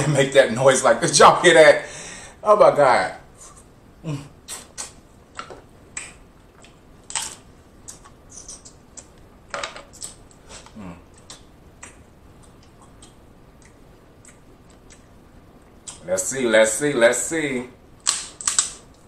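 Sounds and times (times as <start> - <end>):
crab shells cracking: 18.0 - 19.0.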